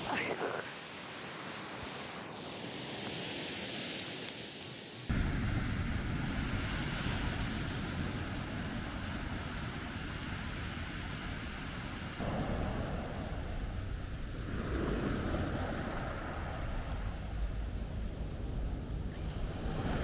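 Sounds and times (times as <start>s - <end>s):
waves breaking on a beach: 0.0s - 20.0s
wind rumble on microphone: 5.1s - 20.0s.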